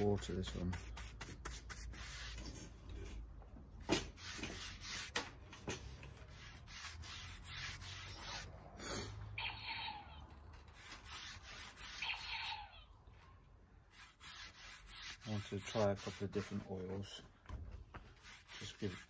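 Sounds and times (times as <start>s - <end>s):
paintbrush rubbing on rough wood: 0.0s - 2.7s, 4.1s - 5.1s, 6.2s - 9.1s, 10.8s - 12.5s, 13.9s - 17.2s, 18.1s - 19.0s.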